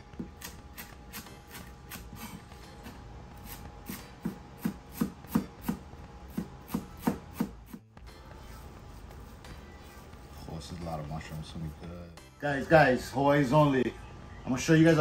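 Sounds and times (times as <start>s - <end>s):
knife chopping on wooden board: 3.9s - 7.8s.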